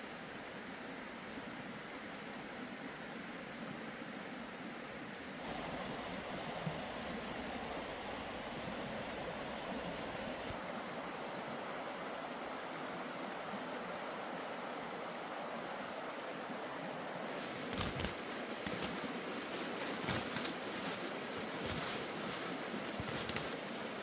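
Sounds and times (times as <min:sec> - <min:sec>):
leaves and stems rustling: 0:17.2 - 0:24.0.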